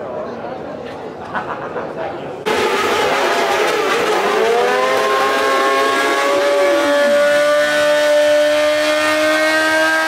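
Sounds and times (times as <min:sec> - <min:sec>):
motorcycle engine revving high: 0:02.5 - 0:10.0
second engine revs falling: 0:02.5 - 0:10.0.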